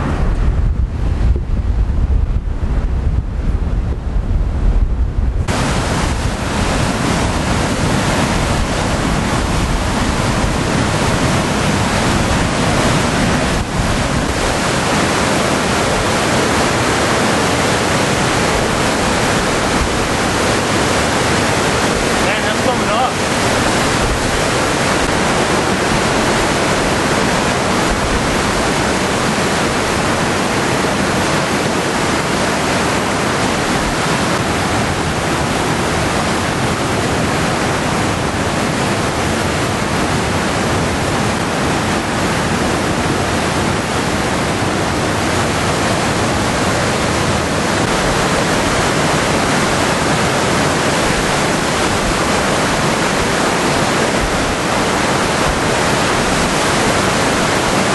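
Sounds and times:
floodwater rushing: 0.0 - 3.8, 5.4 - 57.9.

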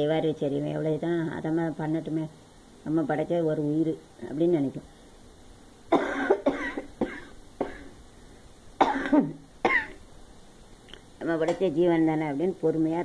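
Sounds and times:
woman coughing: 5.9 - 8.0, 8.8 - 10.0.

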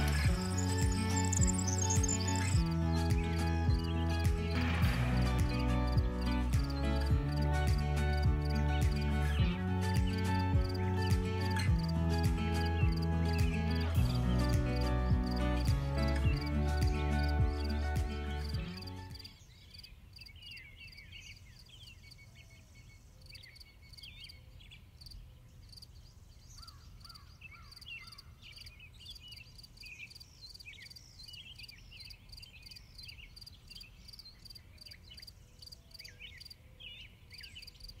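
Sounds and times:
sweeping high chirps: 0.0 - 19.3.

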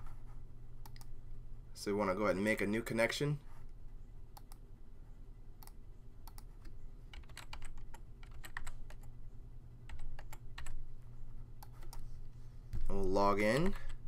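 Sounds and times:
low steady hum: 0.0 - 14.0
typing on computer keyboard: 7.1 - 9.1.

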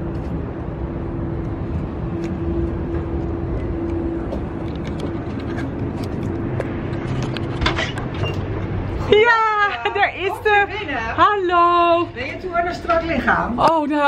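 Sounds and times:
low rumble with steady hum: 0.0 - 14.0.

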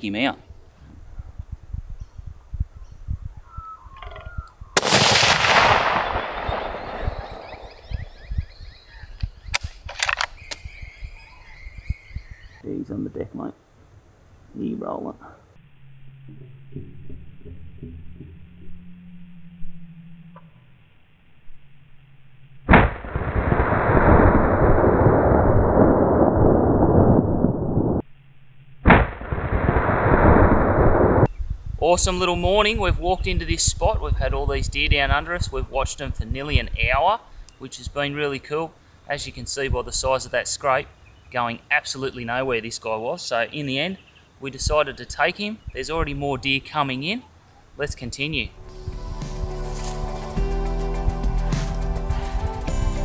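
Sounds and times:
birds calling: 0.4 - 13.4, 40.1 - 50.6
rifle shot echoing: 4.8 - 8.7
sharp clicks: 9.2 - 10.7.

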